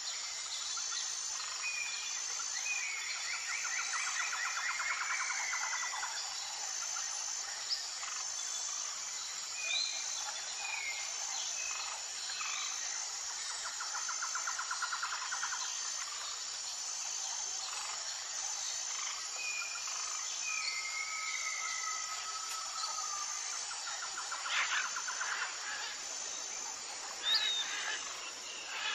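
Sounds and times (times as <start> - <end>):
insect chirping: 0.0 - 28.9
birdsong with whistled calls: 27.2 - 28.9.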